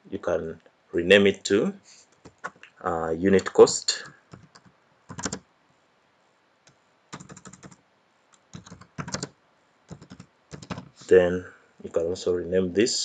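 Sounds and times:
keyboard typing: 2.2 - 2.7, 4.2 - 5.4, 7.1 - 7.8, 8.4 - 11.0.

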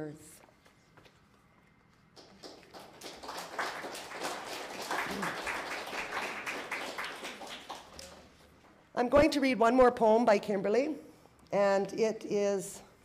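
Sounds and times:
audience applauding: 2.2 - 8.4.

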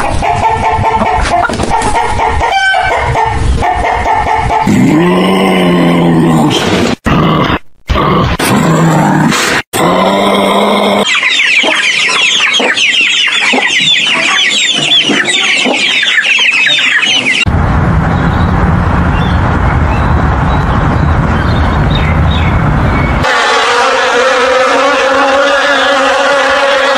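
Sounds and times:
hens clucking and cackling: 0.0 - 4.8, 11.0 - 17.5, 23.2 - 26.9
deep animal grunting: 4.6 - 11.1.

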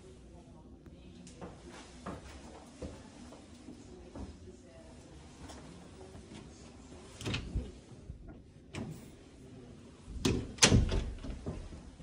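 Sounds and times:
interior doors clunking: 10.2 - 11.8.

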